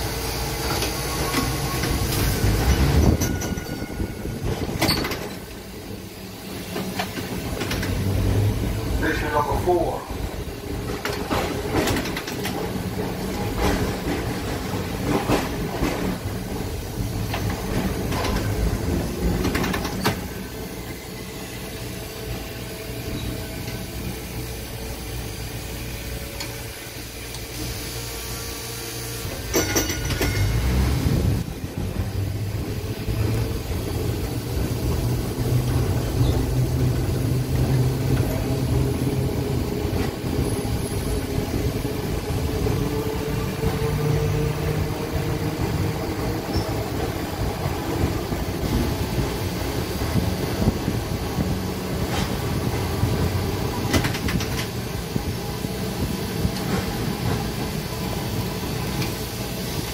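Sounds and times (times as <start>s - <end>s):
streetcar clatter: 0.0s - 59.9s
streetcar low hum: 0.0s - 59.9s.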